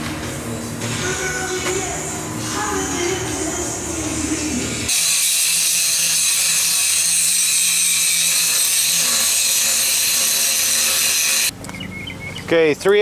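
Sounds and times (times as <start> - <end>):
angle grinder grinding metal: 4.9 - 11.5.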